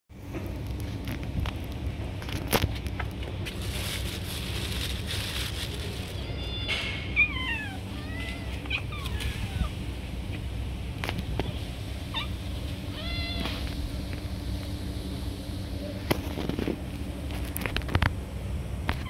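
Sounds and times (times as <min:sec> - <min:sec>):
low background rumble: 0:00.2 - 0:19.0
cat meowing: 0:06.0 - 0:09.8, 0:12.9 - 0:13.6.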